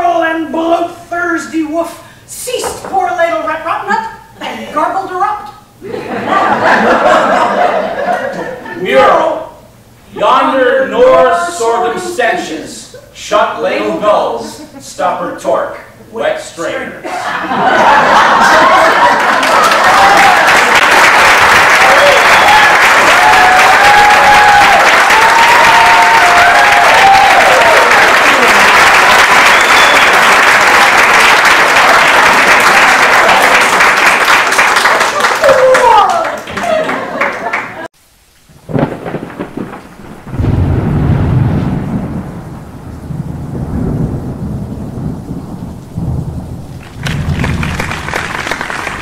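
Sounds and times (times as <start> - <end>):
audience applauding: 17.6 - 37.9, 46.8 - 49.0
rain: 19.7 - 34.4, 37.9 - 49.0
thunder crack and rumble: 38.6 - 49.0.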